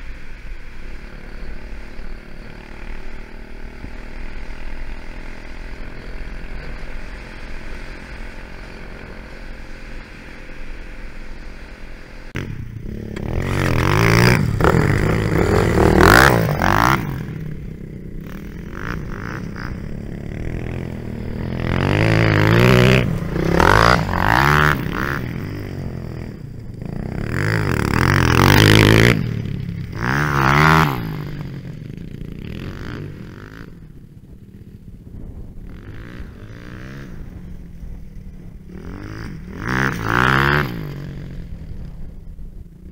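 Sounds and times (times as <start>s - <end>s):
dirt bike engine revving: 0.4s - 34.0s, 35.2s - 42.1s
wind noise on camera: 32.5s - 42.9s.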